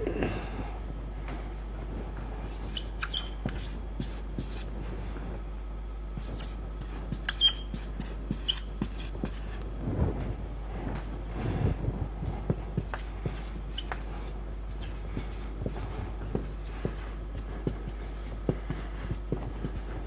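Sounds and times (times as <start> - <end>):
steady low hum: 0.0 - 20.0
marker writing on whiteboard: 2.4 - 4.7, 6.2 - 9.6, 12.2 - 20.0.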